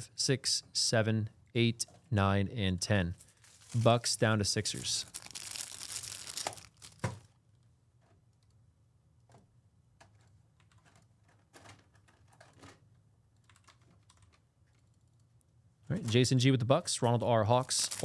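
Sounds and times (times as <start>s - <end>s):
rustling: 3.2s - 4.1s, 4.8s - 7.3s
keyboard typing and clicks: 13.4s - 15.3s.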